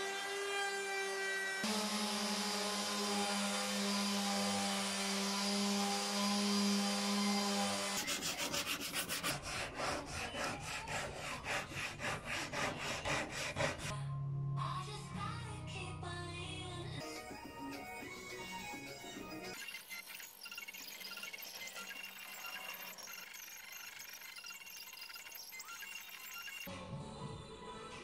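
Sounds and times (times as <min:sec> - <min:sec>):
rubbing strokes of sanding wood: 0:07.8 - 0:13.9.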